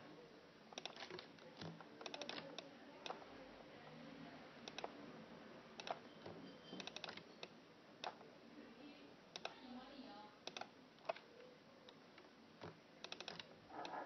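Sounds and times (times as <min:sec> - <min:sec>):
mouse and keyboard clicking: 0:00.8 - 0:03.2, 0:04.7 - 0:04.9, 0:05.8 - 0:06.0, 0:06.8 - 0:07.2, 0:08.0 - 0:08.2, 0:12.6 - 0:14.0.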